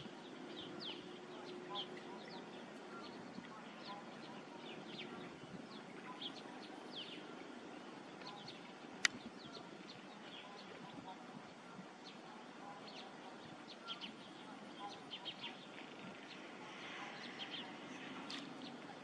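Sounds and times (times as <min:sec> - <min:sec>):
birds chirping: 0:00.0 - 0:19.0
low outdoor noise: 0:00.0 - 0:19.0
sharp click: 0:09.0 - 0:09.2.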